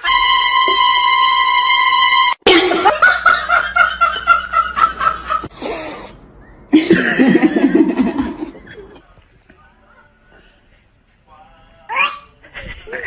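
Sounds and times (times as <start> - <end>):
person laughing: 6.8 - 8.9.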